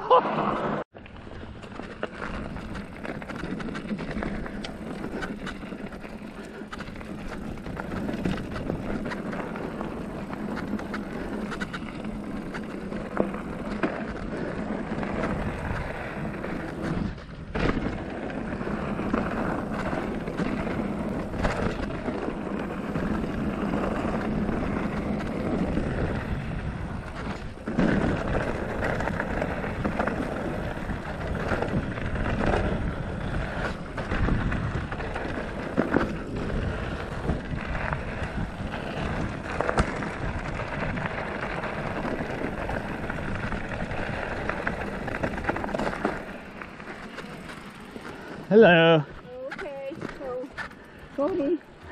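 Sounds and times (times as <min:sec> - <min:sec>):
bike tyres on dirt and gravel: 0:00.0 - 0:51.9
bike knocking and rattling: 0:01.0 - 0:51.9
wind buffeting microphone: 0:14.2 - 0:46.5.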